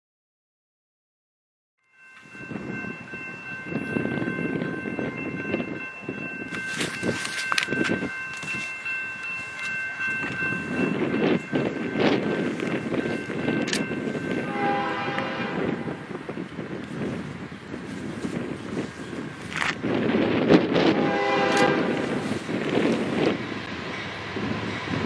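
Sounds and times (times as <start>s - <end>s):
train rumble and wheel clatter: 2.0s - 25.0s
locomotive air horn: 14.4s - 16.0s, 20.9s - 22.4s.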